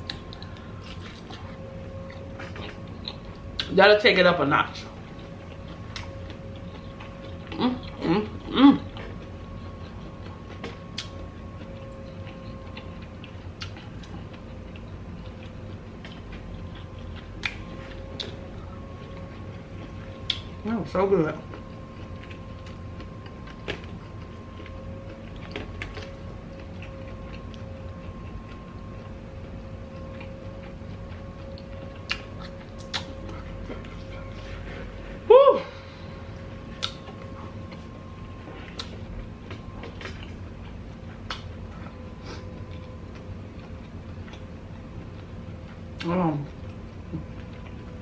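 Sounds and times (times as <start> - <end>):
faint hum: 0.0 - 48.0
chewing clicks and smacks: 5.1 - 8.1, 8.9 - 18.4, 19.1 - 20.6, 29.8 - 34.1, 36.7 - 37.8, 38.7 - 41.9.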